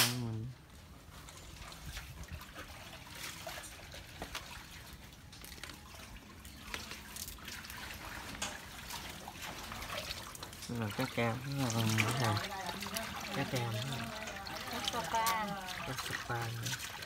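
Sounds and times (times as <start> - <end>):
water trickling in a basin: 0.3 - 17.0.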